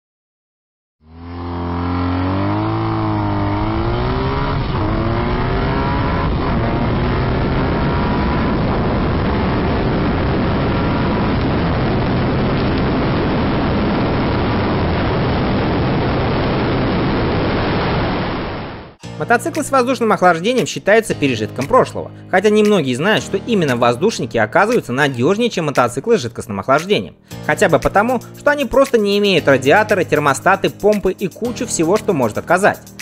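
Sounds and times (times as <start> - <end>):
motorcycle engine at high speed: 1.0 - 19.0
heavy wind rush: 2.3 - 19.0.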